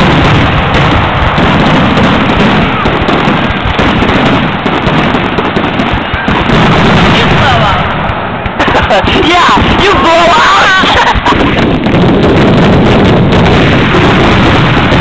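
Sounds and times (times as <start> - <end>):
fireworks bursting: 0.0 - 15.0.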